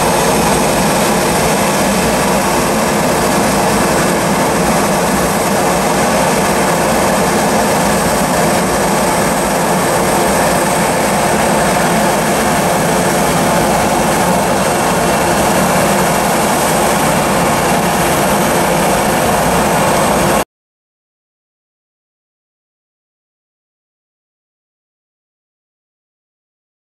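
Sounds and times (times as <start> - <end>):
jet engines at takeoff thrust: 0.0 - 20.4.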